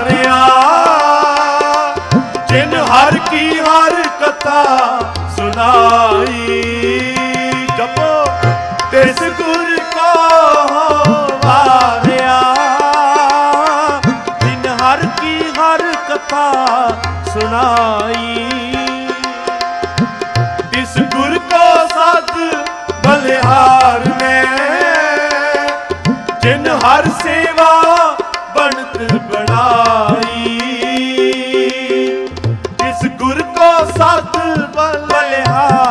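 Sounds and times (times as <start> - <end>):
tabla strokes: 0.0 - 35.9.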